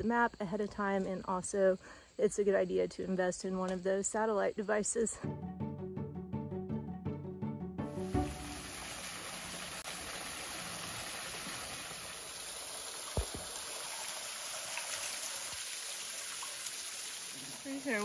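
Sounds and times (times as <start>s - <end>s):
waterfall trickling over rocks: 8.0s - 18.0s
short thump: 13.2s - 13.5s.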